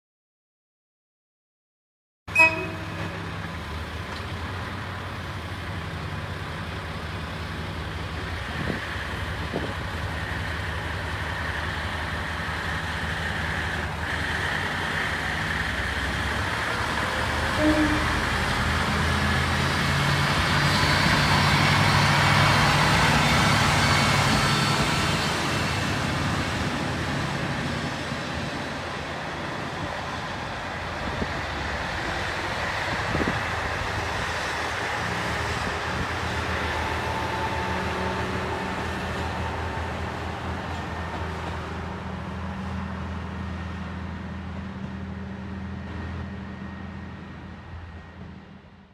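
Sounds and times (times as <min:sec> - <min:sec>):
brief sharp sound: 0:02.3 - 0:03.3
railcar wheel noise: 0:02.3 - 0:48.9.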